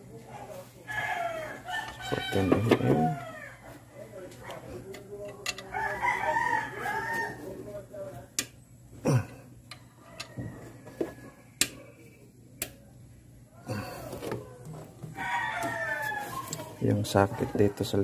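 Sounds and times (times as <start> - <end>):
rooster crowing: 0.9 - 3.8, 5.6 - 7.6, 9.8 - 11.6, 15.0 - 18.0
hand tools clicking and knocking: 4.9 - 5.7.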